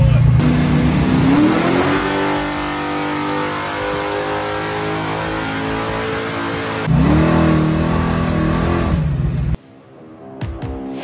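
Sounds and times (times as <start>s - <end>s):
car engine revving: 0.3s - 9.6s.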